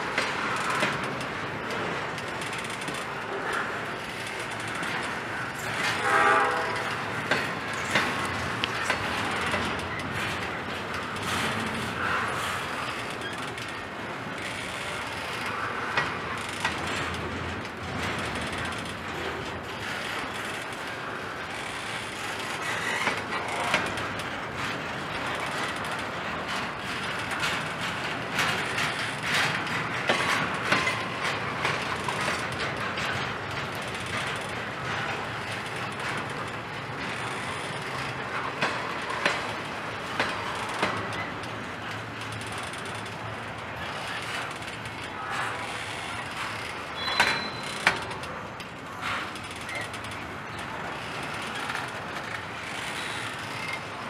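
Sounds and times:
clanks and clicks: 0:00.0 - 0:54.0
train wheels rolling on rails: 0:00.0 - 0:54.0
high squeal: 0:47.0 - 0:47.7.

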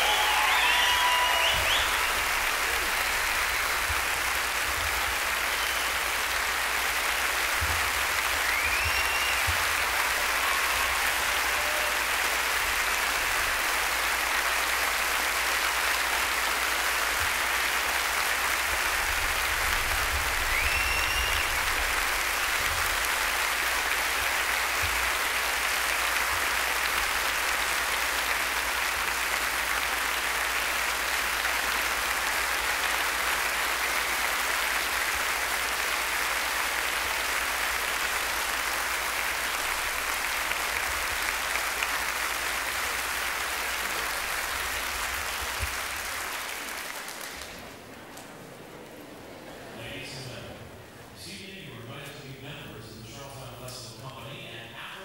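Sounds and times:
audience applauding: 0:00.0 - 0:49.8
short rising whistles: 0:00.5 - 0:02.1, 0:08.4 - 0:09.5, 0:20.5 - 0:21.8.

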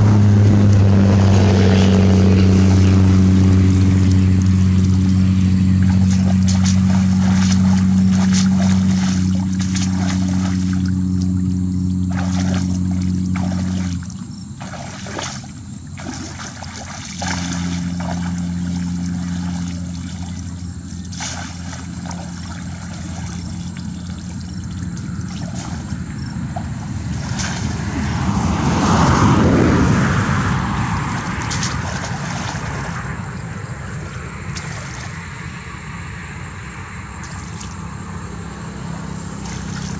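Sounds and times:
engine droning: 0:00.0 - 0:39.9
water splashing and pouring: 0:02.6 - 0:30.0, 0:31.0 - 0:33.1, 0:39.3 - 0:39.9.

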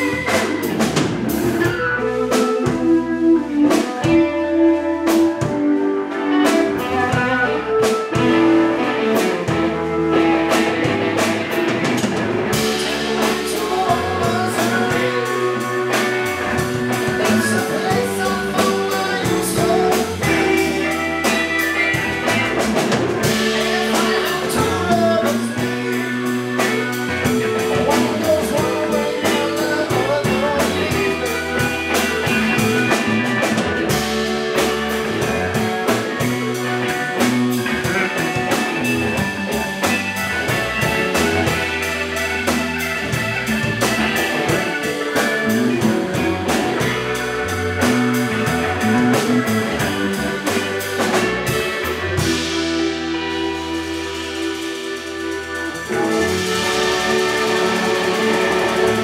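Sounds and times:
drum kit: 0:00.0 - 0:59.0
live blues band playing: 0:00.0 - 0:59.0.

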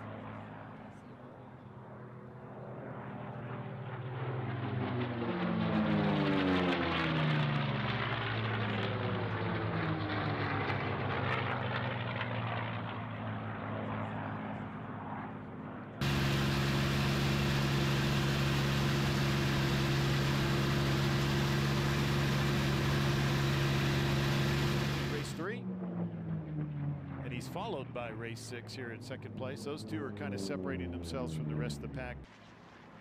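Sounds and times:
aircraft engine drone in cockpit: 0:00.0 - 0:33.0
propeller plane passing low: 0:00.0 - 0:33.0.

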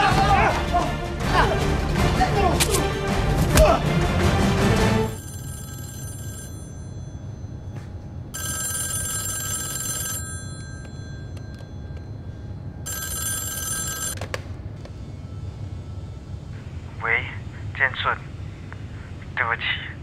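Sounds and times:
desk telephone ringing: 0:05.1 - 0:14.2.

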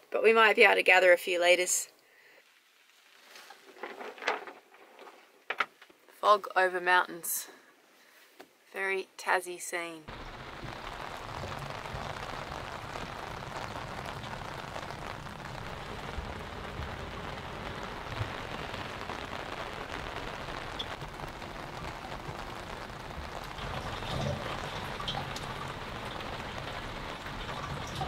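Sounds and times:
light rain falling: 0:01.8 - 0:06.2, 0:10.1 - 0:28.0.

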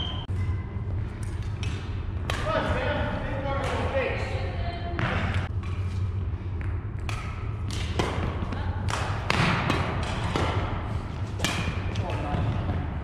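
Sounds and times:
steady low hum: 0:00.0 - 0:13.0
rackets hitting shuttlecocks: 0:01.3 - 0:02.6, 0:03.5 - 0:04.0, 0:06.6 - 0:12.6.

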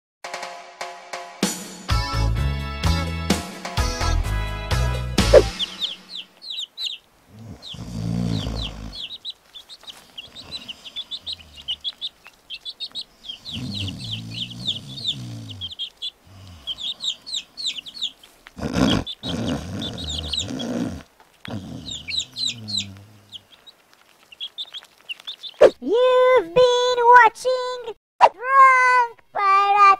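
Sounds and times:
small birds chirping: 0:03.8 - 0:27.8
low drawn-out bird calls: 0:05.2 - 0:25.8.

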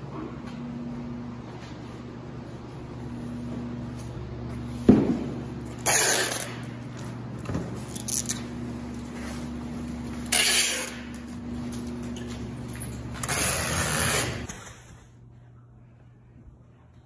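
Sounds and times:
thump: 0:04.8 - 0:05.3
tape ripping screech: 0:05.8 - 0:06.6, 0:10.3 - 0:11.0, 0:13.2 - 0:14.7.

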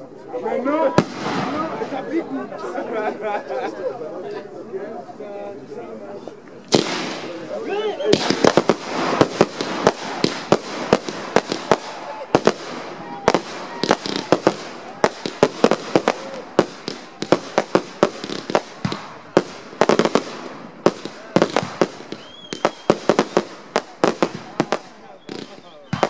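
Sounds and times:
fireworks crackling: 0:00.8 - 0:03.8, 0:05.0 - 0:26.0
fireworks bangs: 0:00.9 - 0:02.4, 0:06.7 - 0:26.0.

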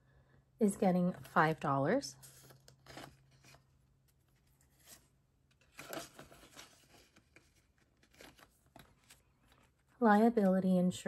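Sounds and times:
paper banknotes rustling: 0:02.2 - 0:09.8.

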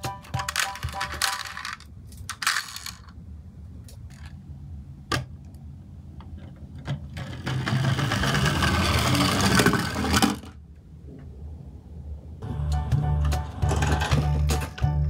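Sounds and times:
toy forklift drive whirring: 0:07.1 - 0:10.6, 0:13.6 - 0:14.7.

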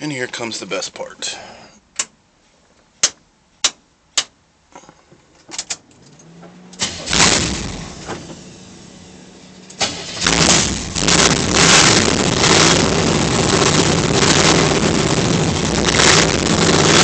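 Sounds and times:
car engine starting and revving: 0:05.8 - 0:17.0.

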